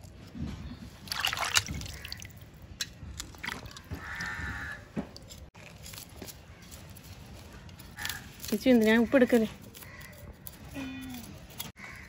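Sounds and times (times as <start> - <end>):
water splashing and dripping: 1.0 - 4.0.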